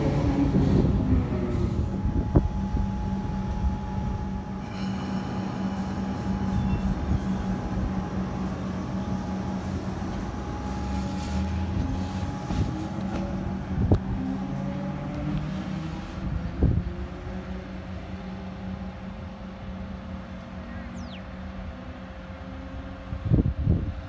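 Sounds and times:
train equipment humming: 0:00.0 - 0:24.0
thin high whine: 0:01.5 - 0:13.8.

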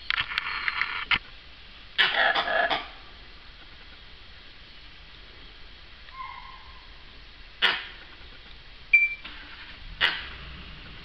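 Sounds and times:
dholes yelping squeaks: 0:06.1 - 0:06.9.

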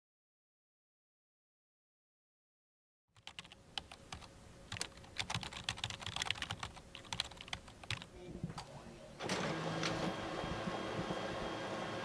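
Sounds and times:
keyboard typing: 0:03.2 - 0:08.7.

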